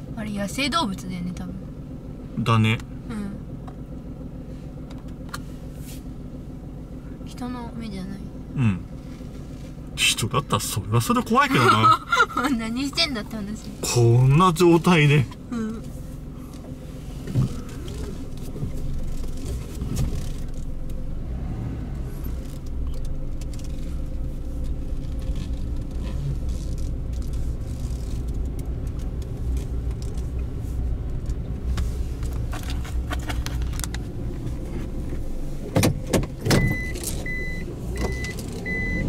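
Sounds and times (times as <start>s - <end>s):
car engine and road rumble: 0.0s - 39.0s
high electronic beep: 36.6s - 39.0s.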